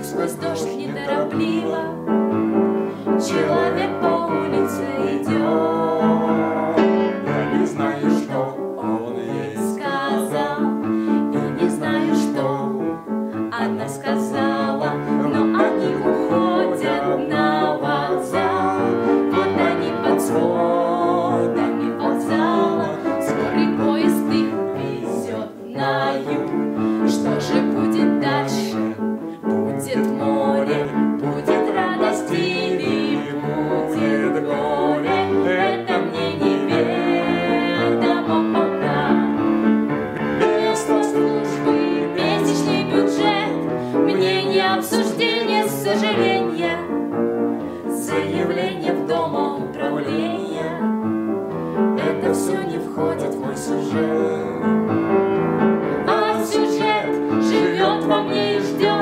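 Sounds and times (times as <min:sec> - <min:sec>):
woman singing: 0:00.0 - 0:02.0, 0:03.2 - 0:06.9, 0:07.6 - 0:39.4, 0:40.4 - 0:46.9, 0:47.9 - 0:51.0, 0:52.0 - 0:54.5, 0:56.1 - 0:59.0
piano accompaniment: 0:00.0 - 0:59.0
man singing: 0:05.3 - 0:10.1, 0:14.9 - 0:17.2, 0:52.0 - 0:54.8.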